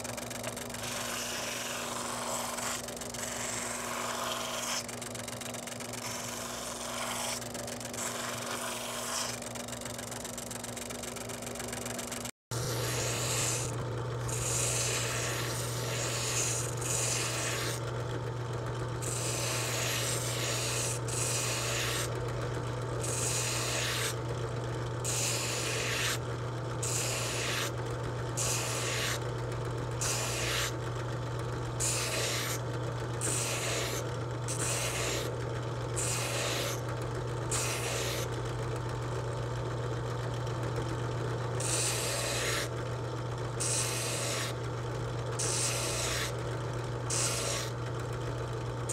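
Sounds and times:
drill motor hum: 0.0s - 48.9s
wood sanding hiss: 28.4s - 29.2s.

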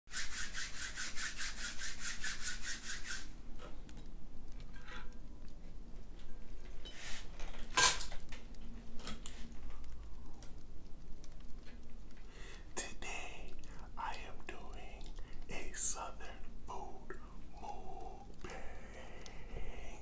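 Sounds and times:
rapid even rubbing: 0.1s - 3.3s.

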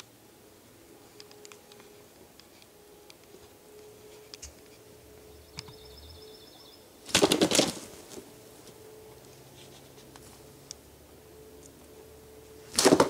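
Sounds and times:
turkey wings flapping: 7.0s - 8.3s, 12.7s - 13.0s.

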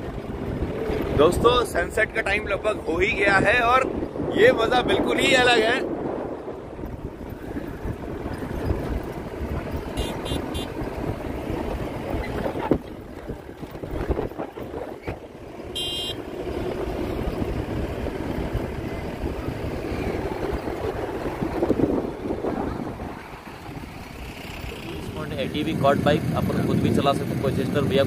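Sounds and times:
wind buffeting microphone: 0.0s - 28.0s
car engine running: 6.4s - 28.0s.

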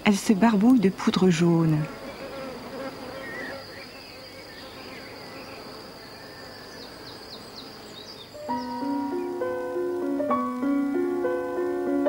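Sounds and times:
insects buzzing drone: 0.0s - 12.0s
piano music: 8.4s - 12.0s.

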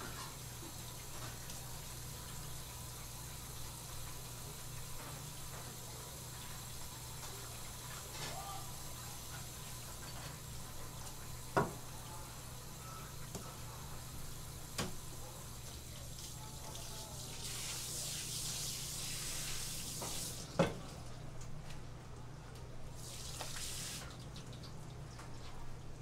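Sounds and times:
faucet water running onto board: 16.1s - 20.4s, 23.0s - 24.2s.

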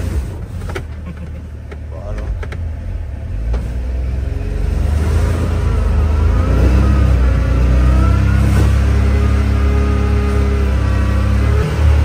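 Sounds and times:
engine revving and accelerating: 3.2s - 12.0s.

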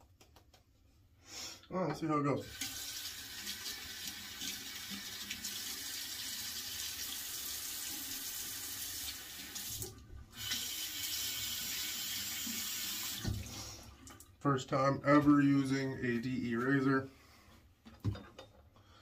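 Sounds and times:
water running from sink tap: 2.4s - 14.3s.

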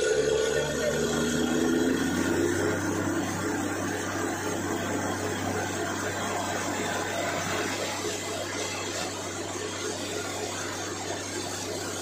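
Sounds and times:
drilling rig engine hum: 0.0s - 12.0s.

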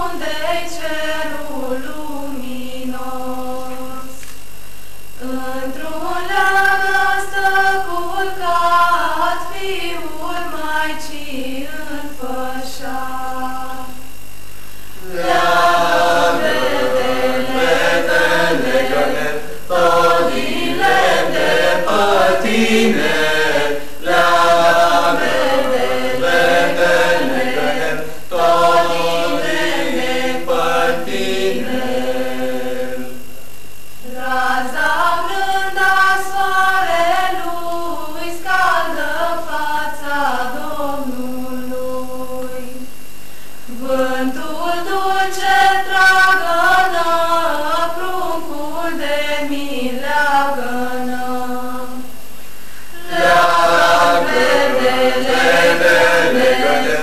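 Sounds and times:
children singing carol together: 5.2s - 13.9s, 15.0s - 33.3s, 34.1s - 41.8s, 43.7s - 52.1s, 53.0s - 57.0s.

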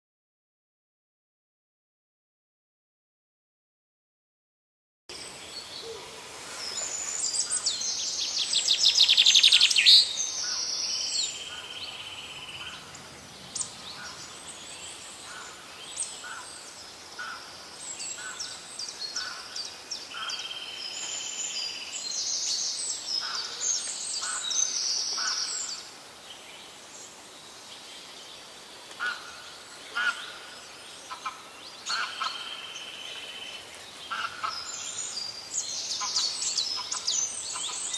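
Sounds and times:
birds singing: 5.1s - 37.9s.

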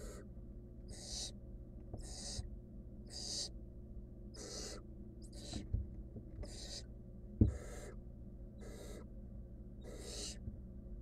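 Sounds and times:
owl chicks hissing begging calls: 0.0s - 0.3s, 0.9s - 1.4s, 2.0s - 2.5s, 3.1s - 3.6s, 4.3s - 5.6s, 6.4s - 6.9s, 7.5s - 8.0s, 8.6s - 9.1s, 9.8s - 10.4s
dull knock: 7.4s - 7.6s.

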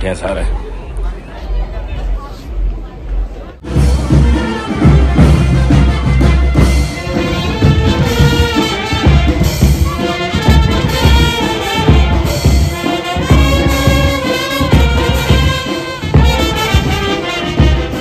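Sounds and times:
brass band playing: 3.6s - 18.0s
steady drum beat: 3.6s - 18.0s.

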